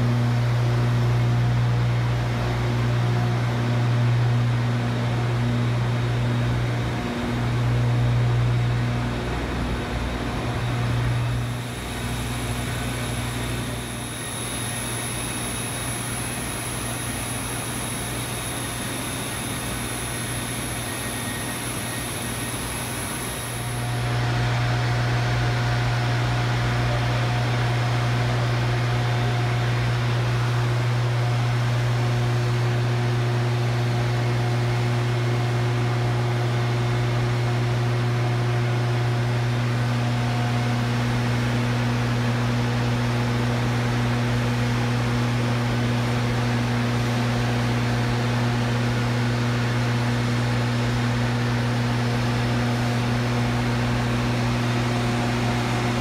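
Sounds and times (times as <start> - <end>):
low machinery hum: 0.0 - 56.0.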